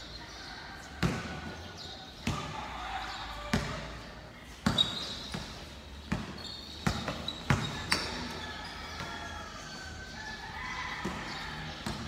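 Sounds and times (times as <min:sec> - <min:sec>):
basketball bouncing on court: 0:01.0 - 0:01.6, 0:03.4 - 0:08.4, 0:10.9 - 0:12.0.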